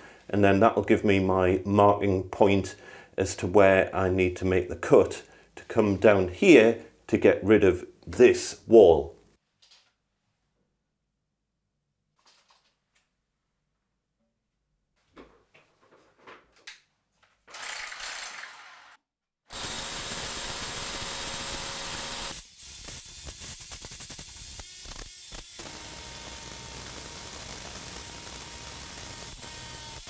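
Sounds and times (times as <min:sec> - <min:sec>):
knocks and handling sounds: 0:15.0 - 0:17.6
drill rattling: 0:17.5 - 0:18.9, 0:19.5 - 0:30.0
hammer drill boring through brick: 0:17.6 - 0:30.0.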